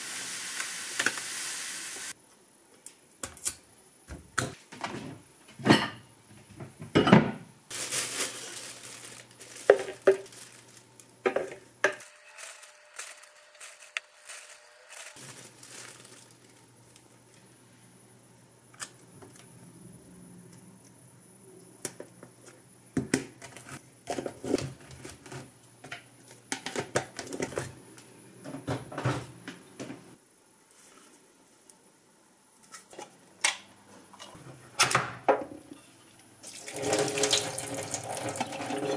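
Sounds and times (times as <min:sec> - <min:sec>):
sticker crinkling rustle: 0:07.7 - 0:11.2, 0:12.3 - 0:17.4.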